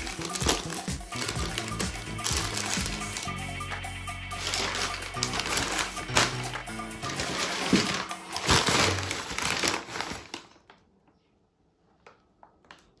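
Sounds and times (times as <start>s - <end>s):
paper rustling and crinkling: 0.0s - 3.4s, 4.3s - 10.8s.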